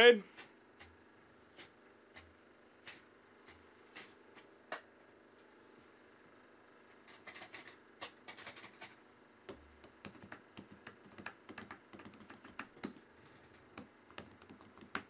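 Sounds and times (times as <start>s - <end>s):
computer keyboard typing: 7.2s - 7.7s, 8.3s - 8.9s, 9.5s - 13.0s, 13.7s - 15.0s.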